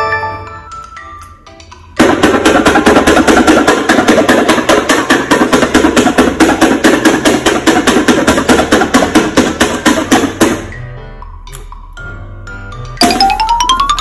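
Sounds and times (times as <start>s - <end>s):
rapid sharp tapping: 2.0s - 10.7s.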